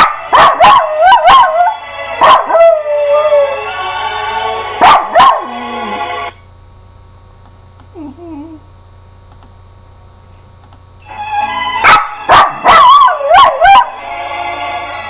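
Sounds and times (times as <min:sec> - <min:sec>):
music playing: 0:00.0 - 0:06.4, 0:11.0 - 0:15.0
small dog howling and yelping: 0:00.5 - 0:01.8, 0:02.4 - 0:03.6, 0:12.6 - 0:14.0.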